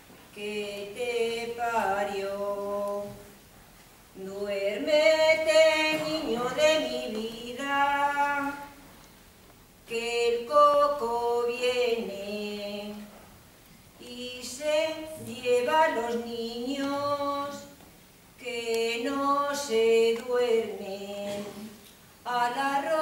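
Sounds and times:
solo voice singing a lullaby: 4.2 - 8.7, 14.0 - 17.8, 18.4 - 23.0.

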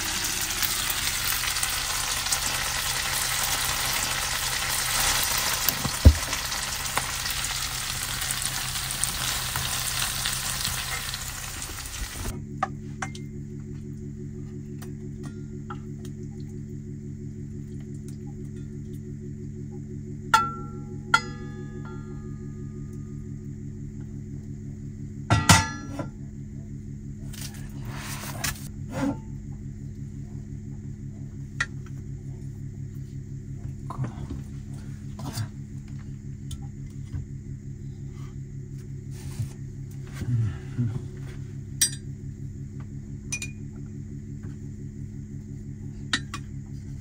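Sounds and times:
steady low hum: 0.0 - 47.0
metal frying pan clanking down: 25.3 - 25.9.

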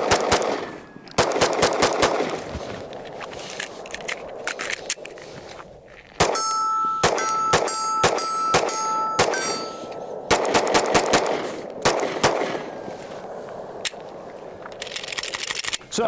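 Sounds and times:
pistol gunshots: 0.0 - 2.5, 6.2 - 12.8
steady ringing tone: 6.3 - 10.3.

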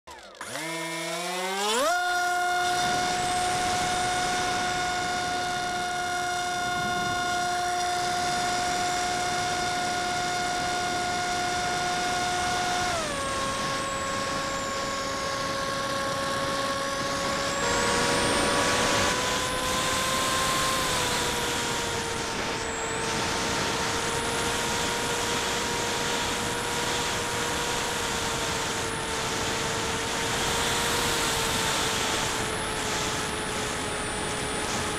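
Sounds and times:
drone motors whining: 0.1 - 34.9.

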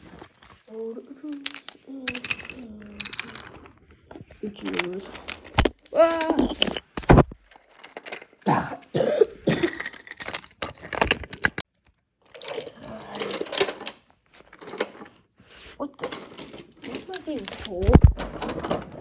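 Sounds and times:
wooden toy train pieces clicking: 0.0 - 8.4, 9.6 - 15.1, 15.9 - 19.0
person coughing and mumbling: 8.4 - 10.0.

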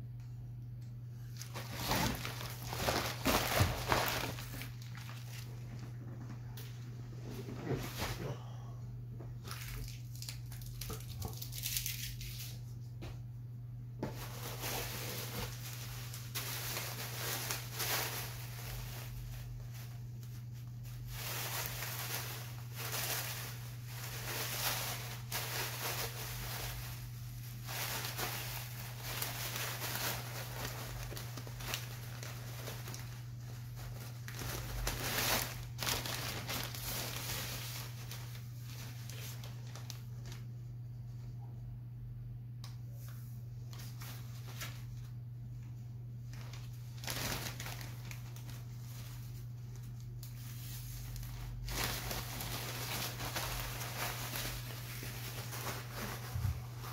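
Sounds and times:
steady low hum: 0.0 - 56.9
plastic bag crinkling: 1.2 - 6.0, 9.4 - 12.6, 14.1 - 40.5, 46.3 - 56.9.

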